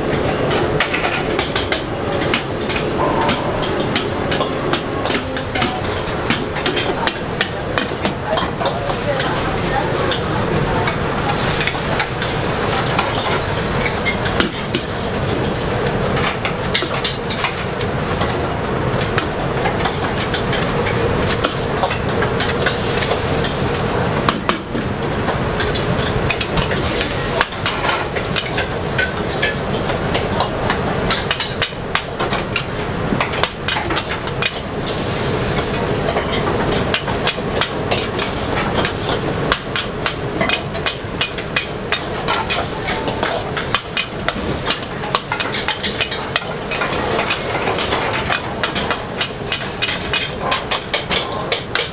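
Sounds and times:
steady hum: 0.0s - 12.6s
frying sizzle: 0.0s - 51.9s.

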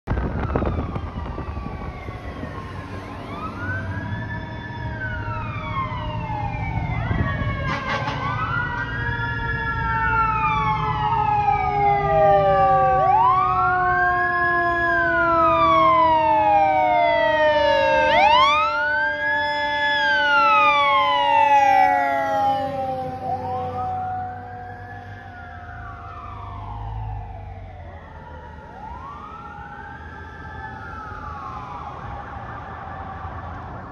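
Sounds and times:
fire engine siren wailing: 0.1s - 33.9s
loud horn blast: 7.6s - 8.5s
second siren tone falling: 9.8s - 28.1s.

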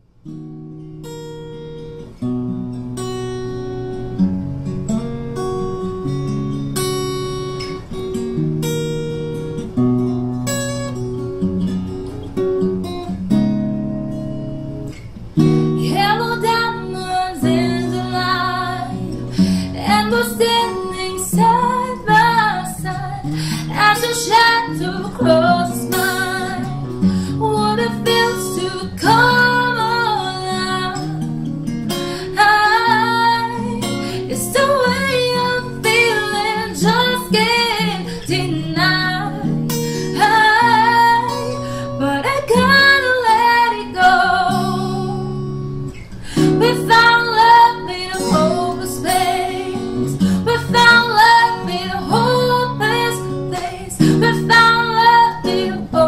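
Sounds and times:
acoustic guitar picking chords: 0.0s - 56.0s
woman singing: 15.8s - 45.6s, 46.2s - 56.0s.

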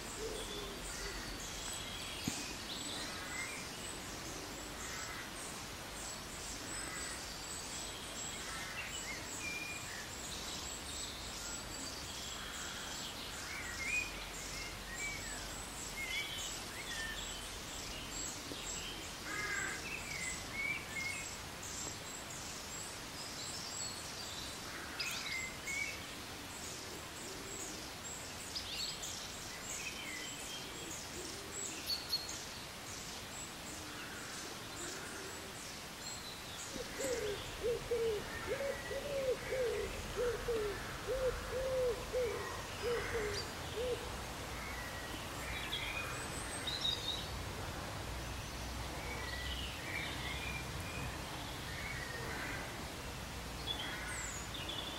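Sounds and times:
small birds chirping and trilling: 0.0s - 47.5s
low repeated hooting call: 36.8s - 44.1s.

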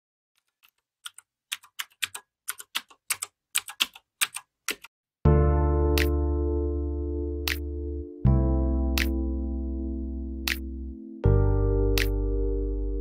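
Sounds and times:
keyboard keystroke clicks: 12.0s - 12.2s.

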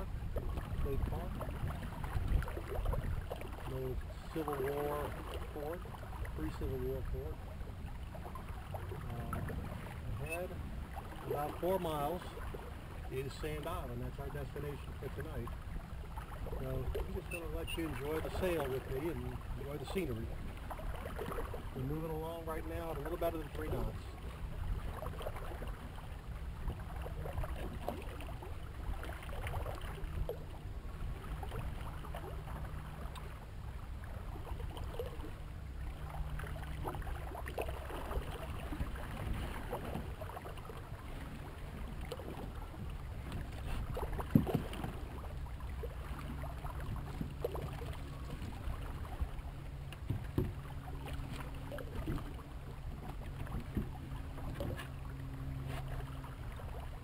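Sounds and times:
wind on microphone: 0.0s - 4.5s
water washing past hull: 0.0s - 57.0s
low hum: 23.9s - 57.0s.

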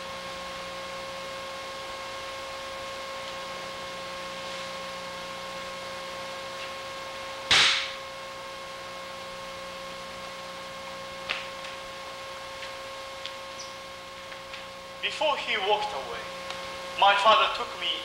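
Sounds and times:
electrical hum: 0.0s - 18.0s
sharp hissing crack: 7.5s - 8.0s.

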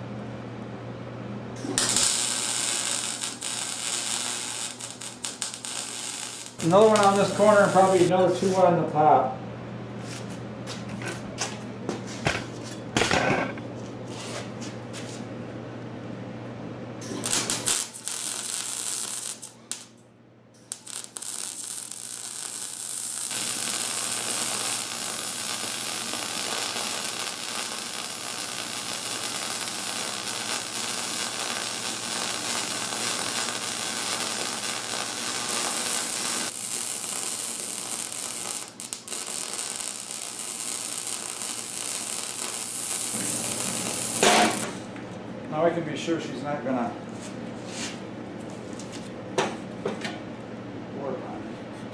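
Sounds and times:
welder arc crackling and sizzling: 1.6s - 8.7s, 17.0s - 20.0s, 20.6s - 44.9s.

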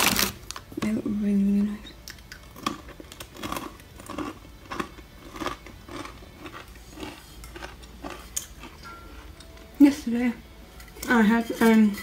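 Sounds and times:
person chewing crunchy pretzels: 2.0s - 9.8s.

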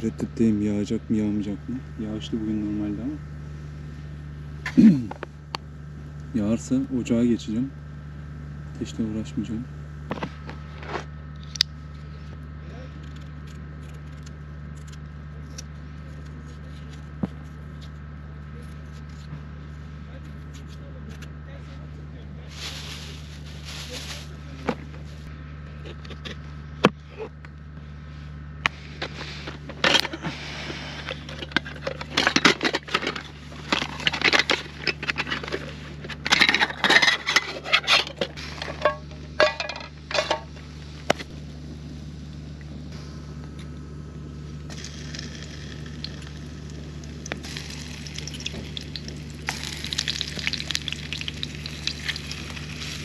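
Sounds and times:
low hum: 0.0s - 53.0s
crackling sizzle: 41.6s - 53.0s.

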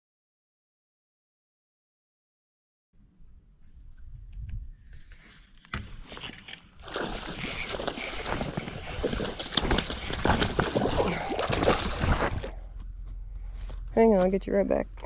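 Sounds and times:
fish splashing in shallow water: 6.7s - 12.6s.

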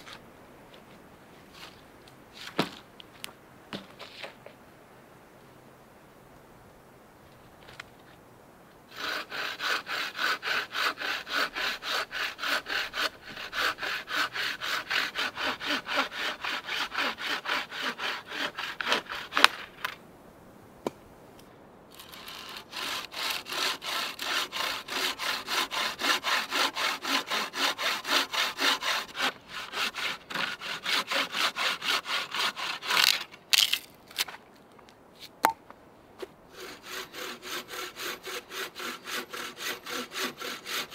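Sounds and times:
bowsaw cutting through log: 8.9s - 19.9s, 21.9s - 33.8s, 36.5s - 40.9s.

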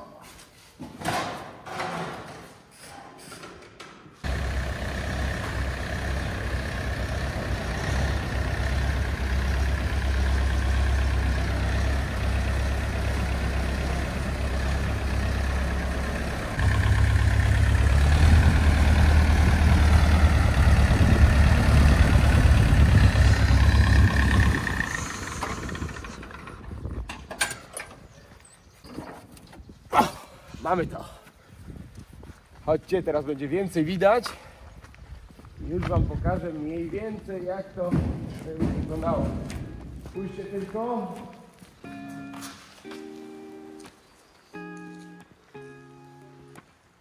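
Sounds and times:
heavy engine running and revving: 4.2s - 27.0s.

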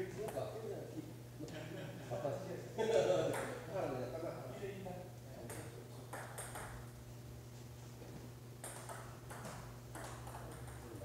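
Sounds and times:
steady low hum: 0.0s - 11.0s
table tennis ball clicking: 5.5s - 6.8s, 8.6s - 10.9s.

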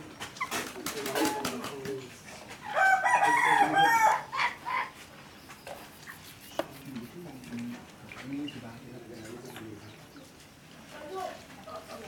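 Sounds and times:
chickens clucking: 0.0s - 10.4s
rooster crowing: 2.7s - 4.6s.

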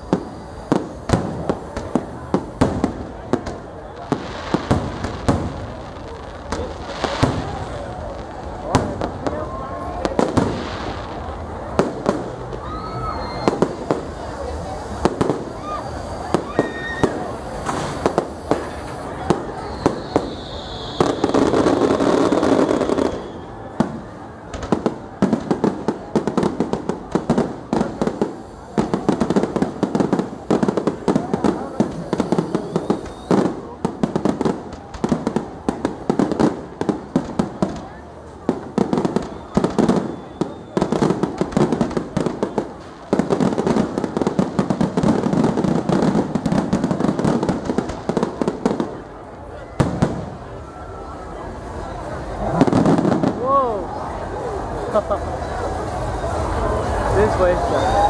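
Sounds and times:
firework rush: 0.0s - 58.0s
firework whistle falling in pitch: 12.5s - 13.8s, 15.5s - 23.8s, 31.9s - 33.7s, 39.1s - 41.1s.

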